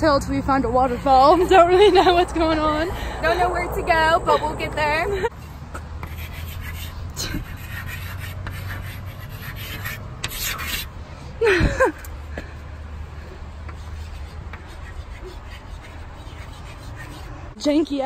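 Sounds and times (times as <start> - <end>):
chalk scraping on chalkboard: 5.3 - 10.9, 13.4 - 17.6.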